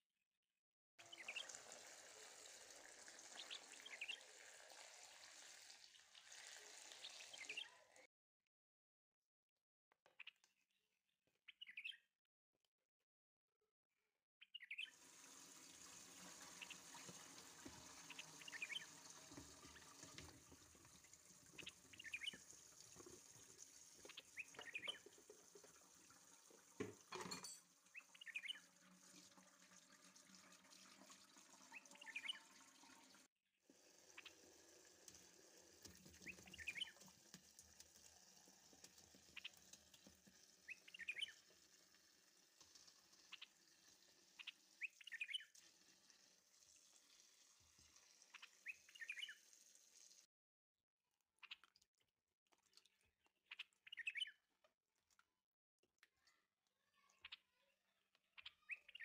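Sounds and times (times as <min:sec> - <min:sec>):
running tap water: 0:01.0 - 0:07.8, 0:14.9 - 0:50.3
small bird chirping: 0:11.5 - 0:12.1, 0:14.5 - 0:15.0, 0:18.1 - 0:18.9, 0:21.6 - 0:22.4, 0:24.1 - 0:25.0, 0:27.9 - 0:28.6, 0:36.2 - 0:37.0, 0:40.7 - 0:41.4, 0:44.4 - 0:45.5, 0:48.3 - 0:49.4, 0:51.4 - 0:51.8, 0:52.8 - 0:54.5, 0:56.1 - 0:59.0.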